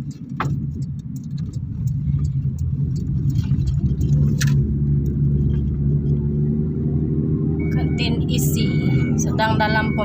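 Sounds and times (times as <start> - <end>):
car engine and road rumble: 0.0 - 10.0.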